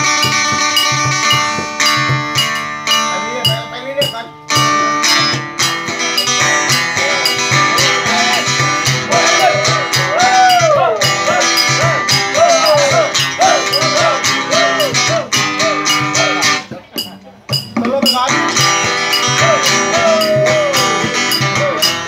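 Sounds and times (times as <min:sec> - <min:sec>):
acoustic guitars strummed: 0:00.0 - 0:22.0
man singing: 0:06.2 - 0:16.6, 0:18.2 - 0:22.0.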